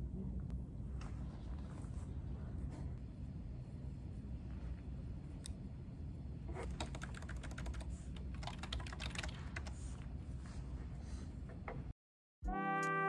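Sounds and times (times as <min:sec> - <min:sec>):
keyboard typing: 0:06.6 - 0:09.8.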